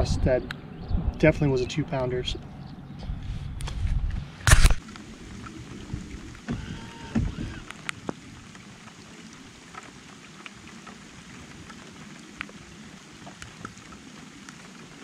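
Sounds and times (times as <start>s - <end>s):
rain falling on water: 4.7s - 15.0s
raindrop ticks: 4.8s - 15.0s.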